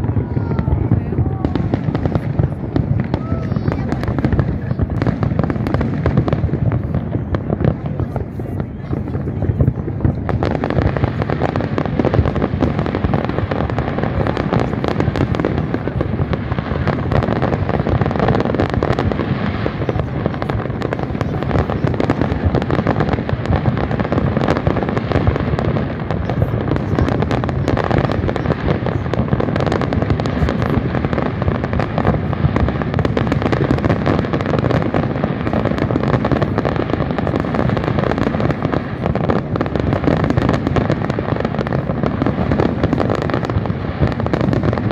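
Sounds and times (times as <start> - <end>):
fireworks bursts rumbling: 0.0 - 44.9
fireworks crackle: 0.0 - 44.9.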